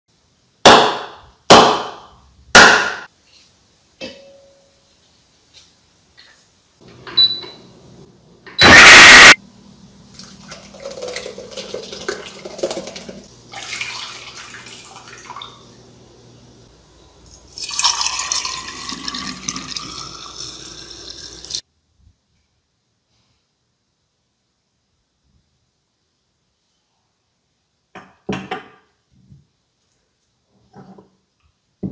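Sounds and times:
loud noisy burst: 8.6s - 9.4s
liquid splashing into a bowl: 10.1s - 15.6s.

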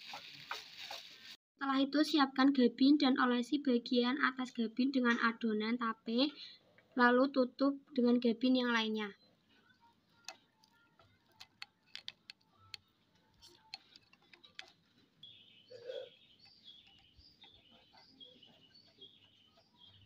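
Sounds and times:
bird chirps: 13.4s - 20.0s.

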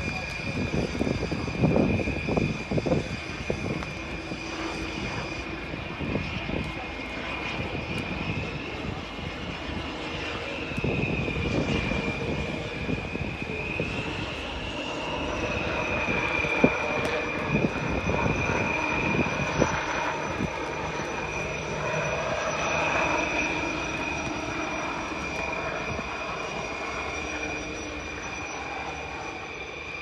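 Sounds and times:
helicopter rotors rushing: 0.0s - 30.0s
helicopter turbine whine: 0.0s - 30.0s.

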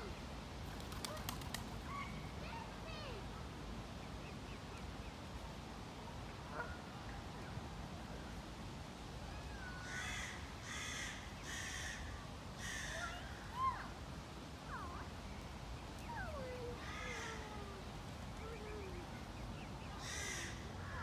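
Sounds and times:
crow cawing: 9.8s - 12.0s, 20.0s - 20.6s.

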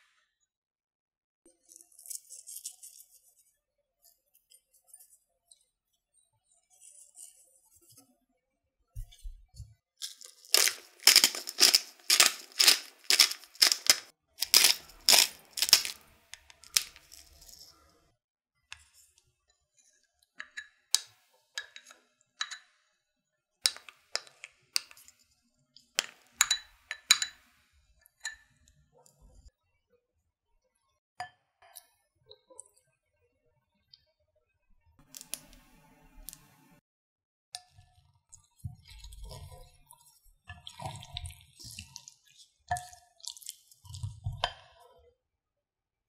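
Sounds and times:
salt and pepper grinder rasping: 10.0s - 17.7s
spatula scraping glass bowl: 10.0s - 17.8s.

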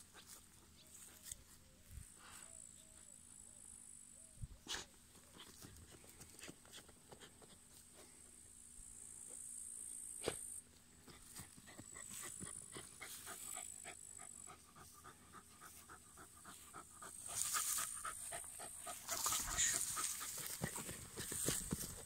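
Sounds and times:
dog panting: 11.1s - 22.0s
rustling grass: 16.5s - 22.0s
scratching soil: 17.2s - 22.0s.

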